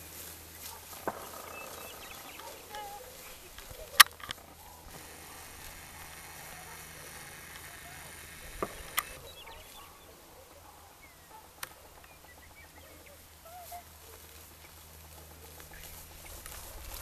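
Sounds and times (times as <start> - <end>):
sharp clicks: 0.9 - 9.7.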